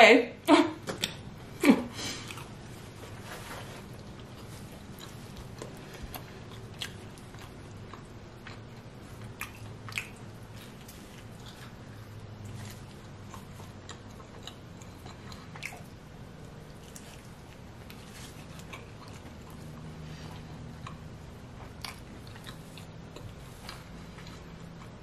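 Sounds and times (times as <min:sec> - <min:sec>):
person chewing pizza: 0:00.9 - 0:25.0
wet mouth clicks and smacks: 0:09.3 - 0:10.3.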